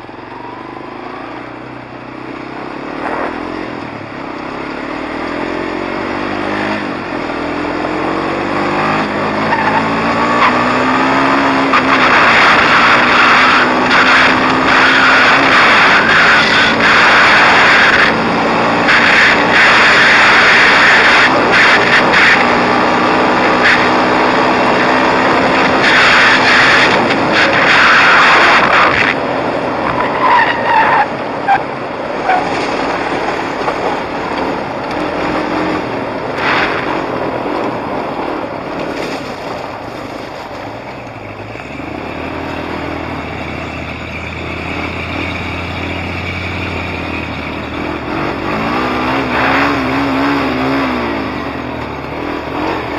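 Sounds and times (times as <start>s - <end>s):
quad engine running: 0.0s - 30.1s
loud rushing noise: 10.2s - 40.8s.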